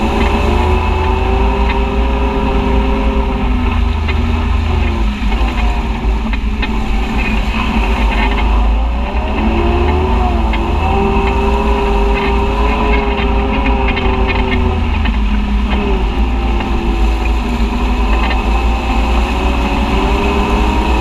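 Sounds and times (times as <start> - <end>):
constant low rumble: 0.0 - 21.0
utility vehicle engine running: 0.0 - 21.0.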